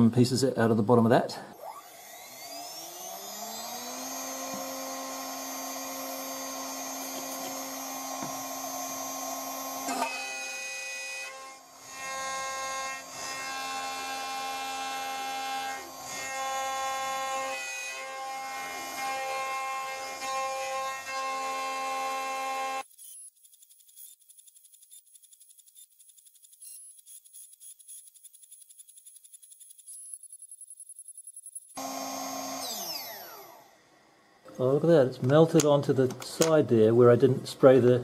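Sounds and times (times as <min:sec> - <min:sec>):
router spindle whine: 0:01.5 - 0:36.6
end mill cutting aluminium: 0:01.6 - 0:22.8, 0:31.8 - 0:33.7.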